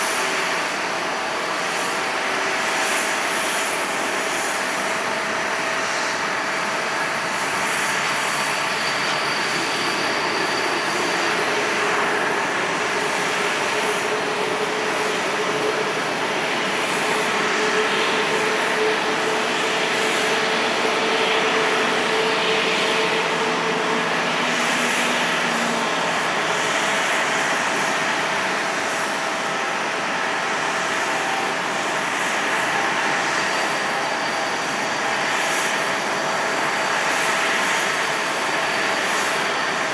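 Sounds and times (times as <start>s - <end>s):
jet engines running: 0.0s - 39.9s.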